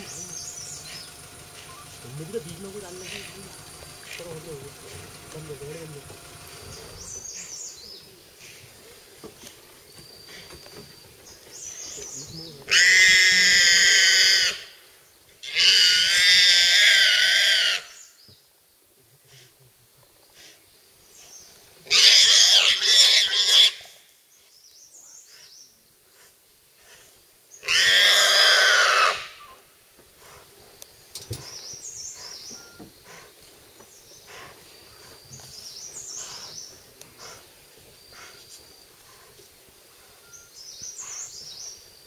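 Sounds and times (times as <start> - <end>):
faint bird chirps: 0.0 - 2.1, 30.8 - 42.0
wild boar squealing: 12.7 - 14.7, 15.4 - 18.0, 21.9 - 24.0, 27.6 - 29.6.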